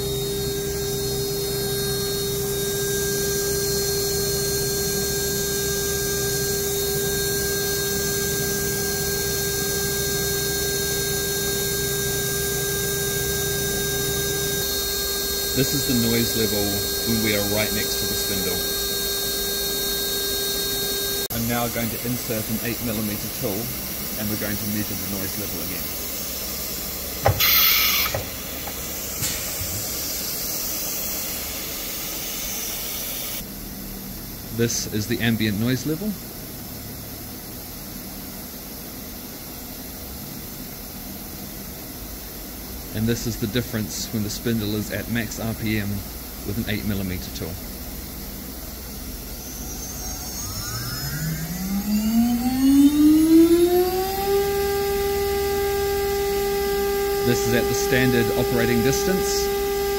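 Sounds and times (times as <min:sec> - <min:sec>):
router spindle whine: 0:00.0 - 0:33.5, 0:43.0 - 0:59.9
compressed air hissing: 0:21.3 - 0:33.4.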